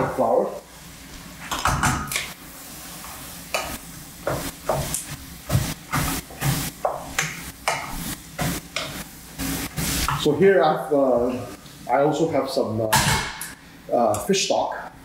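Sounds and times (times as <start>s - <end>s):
light sizzle: 0.0s - 12.7s.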